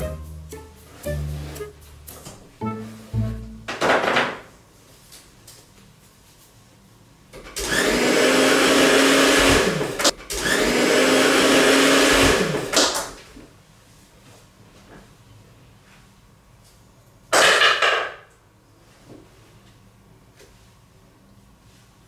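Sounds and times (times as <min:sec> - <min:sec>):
hair dryer running: 0:07.6 - 0:12.7.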